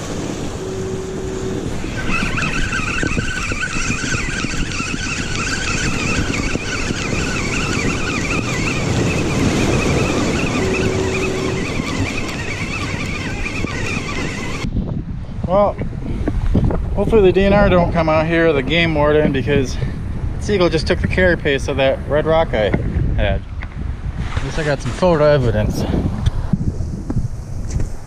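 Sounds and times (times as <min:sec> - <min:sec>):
fishing reel gears whining: 0:00.0 - 0:14.7
wind on microphone: 0:00.0 - 0:28.0.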